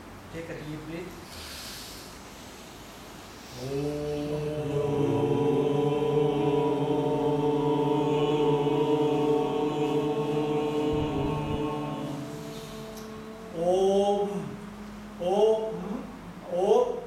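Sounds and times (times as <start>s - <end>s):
man chanting om: 3.5s - 17.0s.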